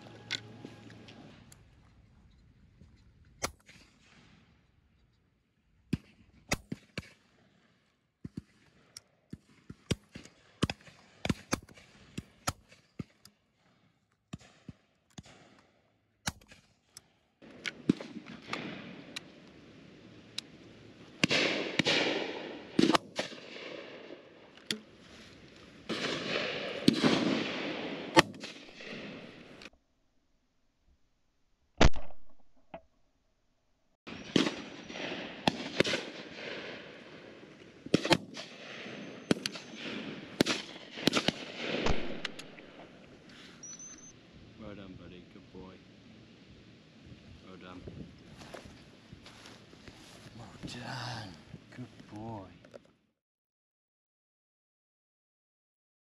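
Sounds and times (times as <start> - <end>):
shotguns firing: 17.4 - 25.0, 25.8 - 29.7, 34.1 - 43.4.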